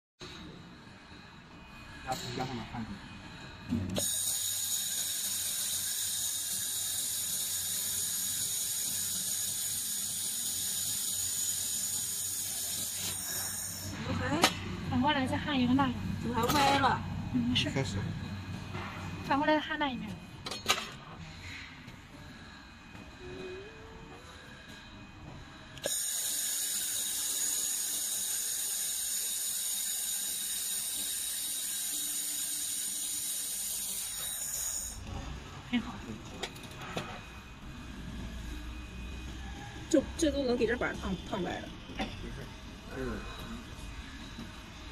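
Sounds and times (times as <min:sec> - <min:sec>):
laser welding gun hissing: 0:03.9 - 0:14.0, 0:25.8 - 0:35.0.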